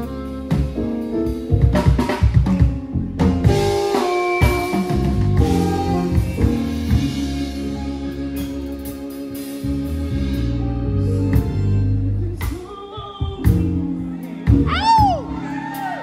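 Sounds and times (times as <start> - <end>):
saxophone melody: 0.0 - 12.5
slow r and b band playing: 0.0 - 16.0
drum kit hits: 0.5 - 7.5.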